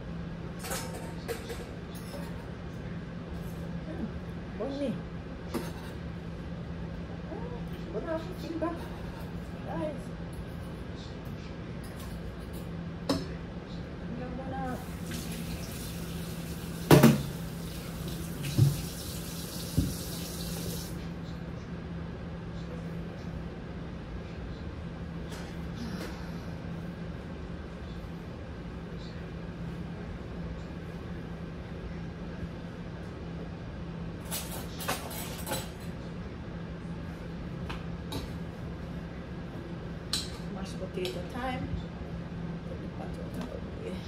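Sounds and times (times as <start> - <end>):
steady low hum: 0.0 - 19.4, 20.2 - 44.0
tap running into sink: 16.8 - 17.4, 18.0 - 20.8.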